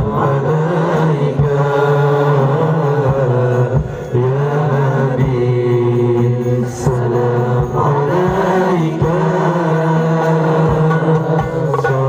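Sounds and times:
person chanting devotional melody: 0.0 - 12.0
drum beat: 6.2 - 12.0.

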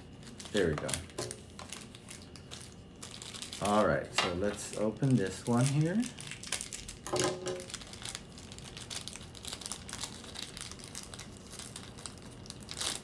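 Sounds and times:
packaging crinkling and tearing: 0.0 - 13.0.

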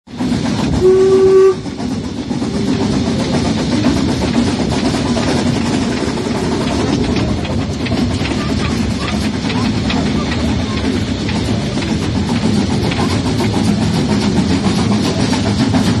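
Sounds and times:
train running noise: 0.1 - 16.0
steam locomotive whistle: 0.7 - 1.8.

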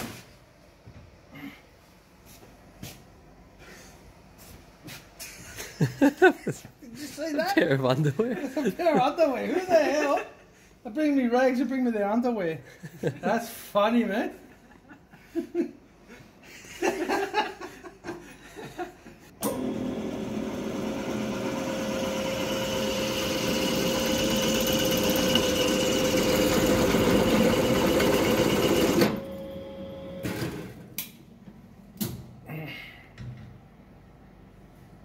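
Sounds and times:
drill press boring metal: 19.4 - 29.4.

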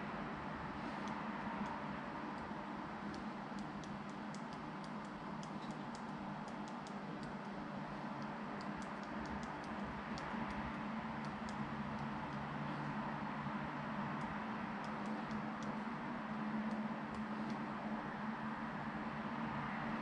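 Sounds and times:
steady low hum: 0.0 - 20.0
phone keyboard typing ticks: 1.0 - 7.6, 8.2 - 13.0, 14.2 - 15.8.

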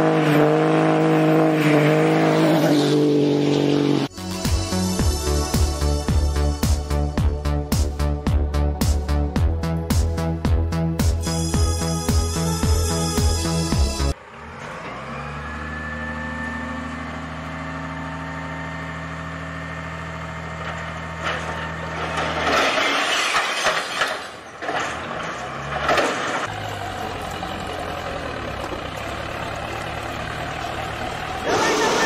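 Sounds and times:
vehicle engine droning: 12.8 - 22.6, 25.0 - 32.0.

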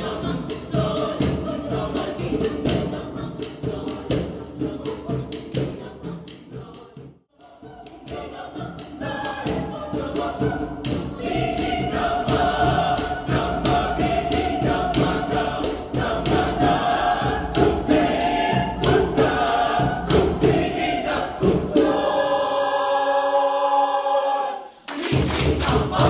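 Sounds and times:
vocal ensemble singing: 0.0 - 26.0
sharp rhythmic knocks: 7.8 - 22.7, 24.9 - 26.0.

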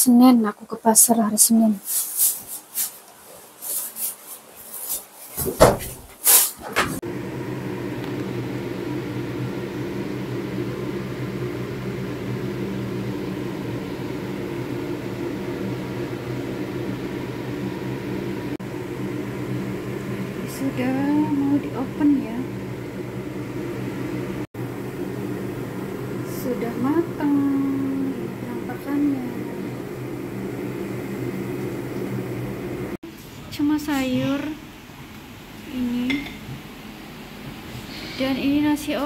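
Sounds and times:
plastic bag rustling: 1.8 - 6.8
machine hum with low tones: 7.0 - 34.8.

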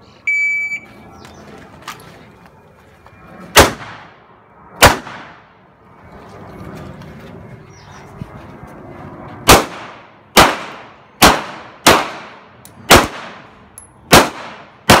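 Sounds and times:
shot timer beep: 0.3 - 0.9
pistol shots: 3.6 - 4.1, 4.8 - 5.4, 9.5 - 13.5, 14.1 - 15.0.

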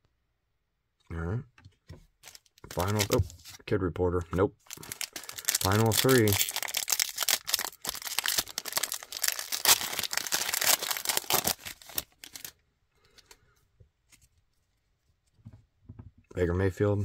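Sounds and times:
cards rustling: 2.2 - 3.6, 4.3 - 13.4
foil wrapper crinkling and tearing: 2.2 - 3.6, 4.6 - 12.6.

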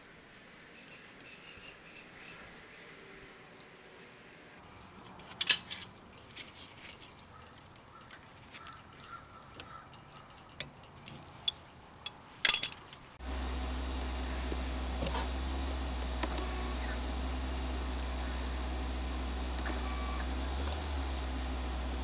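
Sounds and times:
metal parts clattering: 5.2 - 7.1, 12.4 - 13.0
metal tools clinking on brake parts: 5.3 - 5.9, 11.4 - 12.9
steady low hum: 13.2 - 22.0.

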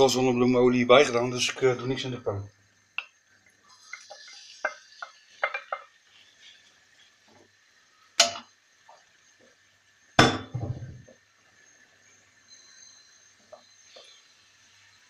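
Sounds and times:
kitchenware knocks: 10.2 - 11.0.

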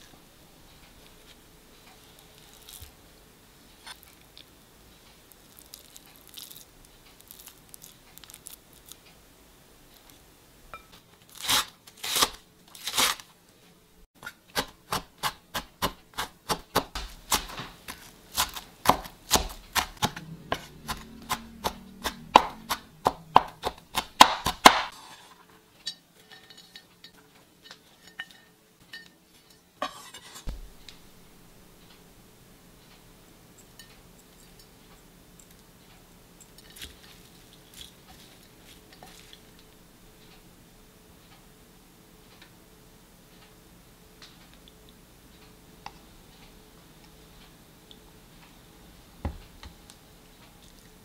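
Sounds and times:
knife chopping on wooden board: 14.6 - 25.0.

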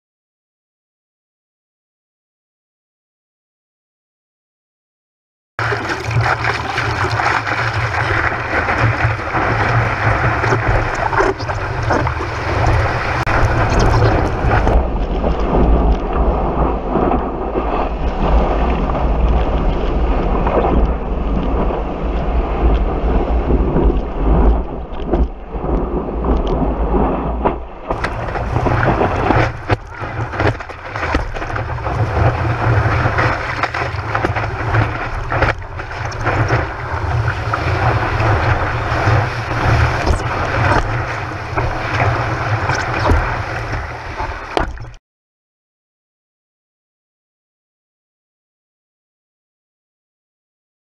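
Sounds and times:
whitewater rushing and splashing: 5.6 - 24.5, 27.9 - 45.0
wind buffeting microphone: 6.0 - 44.8.

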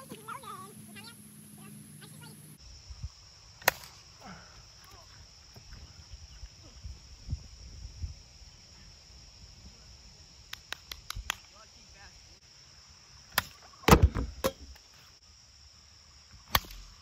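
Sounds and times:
high insect hum: 0.0 - 17.0.

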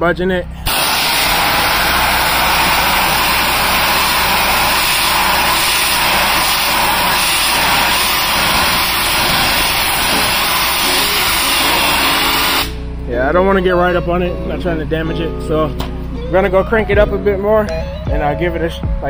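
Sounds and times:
pressure washer motor drone: 0.6 - 16.9
water spray hiss: 0.7 - 12.8.

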